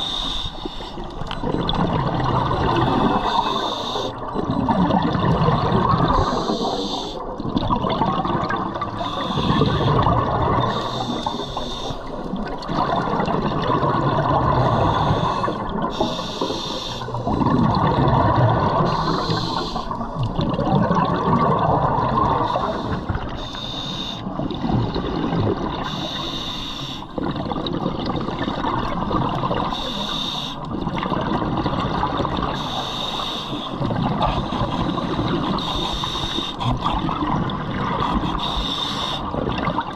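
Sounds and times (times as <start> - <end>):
regulator hiss on inhale: 0.0 - 1.0, 2.9 - 4.2, 6.1 - 7.2, 9.0 - 10.0, 10.7 - 12.1, 14.7 - 17.2, 18.9 - 20.0, 22.4 - 24.3, 25.8 - 27.2, 29.8 - 30.7, 32.5 - 33.8, 34.4 - 36.9, 38.0 - 39.3
exhaled bubbles rushing: 1.0 - 23.4, 24.2 - 26.0, 27.1 - 29.8, 30.7 - 32.8, 33.7 - 39.9.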